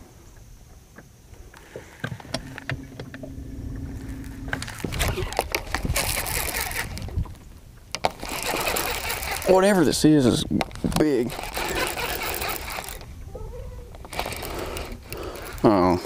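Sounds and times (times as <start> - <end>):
low hum: 2.0 - 9.5
fishing reel clicking: 4.5 - 7.2, 7.9 - 13.1, 14.0 - 16.0.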